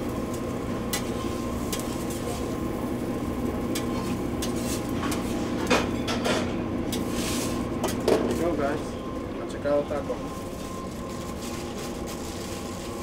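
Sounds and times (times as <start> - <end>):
steady hum: 0.0 - 13.0
metal spatula scraping griddle: 6.2 - 8.1.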